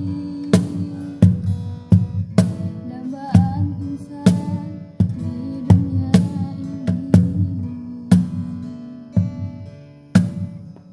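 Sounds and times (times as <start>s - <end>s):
person singing: 0.0s - 1.5s, 2.8s - 9.2s
acoustic guitar strummed: 0.0s - 10.9s
cajon slapped by hand: 0.5s - 5.2s, 10.2s - 10.9s.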